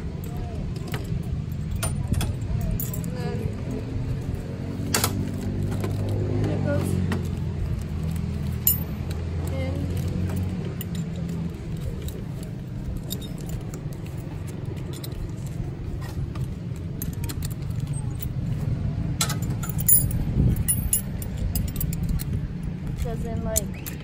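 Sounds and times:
steady low rumble: 0.0 - 24.0
harness buckle clinking and clicking: 0.2 - 3.4, 4.9 - 6.2, 6.8 - 18.5, 19.2 - 24.0.

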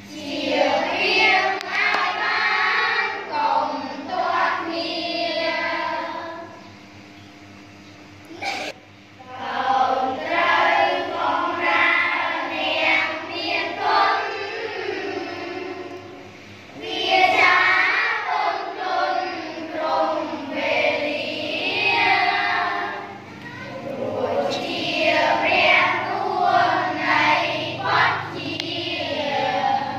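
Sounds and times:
children chanting in unison: 9.2 - 15.9, 16.8 - 29.9.

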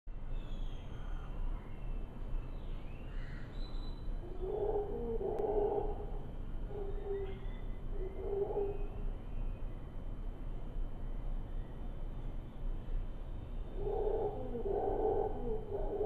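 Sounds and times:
howler monkeys calling: 4.1 - 9.2, 13.6 - 16.0.

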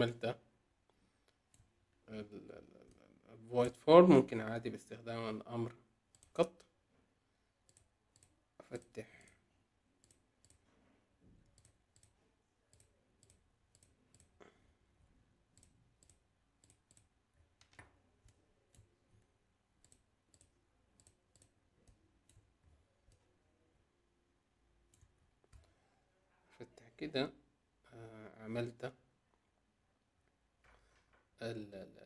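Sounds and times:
computer mouse clicks: 6.1 - 6.7, 7.6 - 9.4, 10.0 - 10.7, 11.4 - 14.4, 15.5 - 18.9, 19.8 - 23.3.

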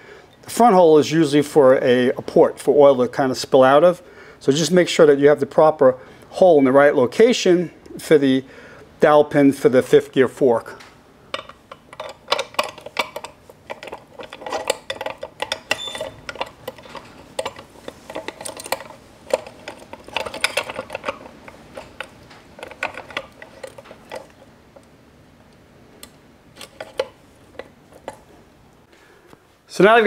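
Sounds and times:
metal-on-metal clicks and clinks: 11.3 - 24.9.

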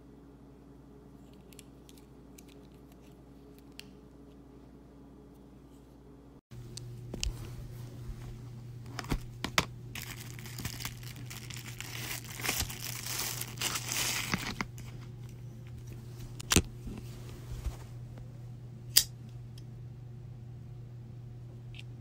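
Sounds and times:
plastic wrapping crinkling: 10.0 - 15.0.

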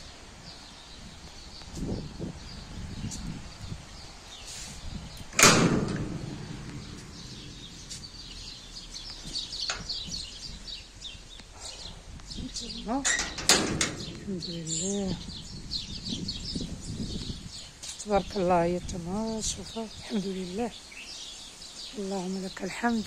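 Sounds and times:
small birds chirping: 0.0 - 23.0
metal gate banging shut: 5.3 - 8.7, 9.6 - 10.2, 12.9 - 14.9.

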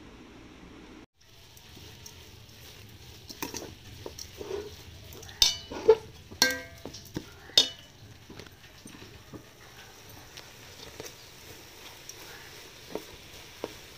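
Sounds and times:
metal spoon scraping metal pot: 3.2 - 9.2
spoon clinking against pot: 3.3 - 9.4.

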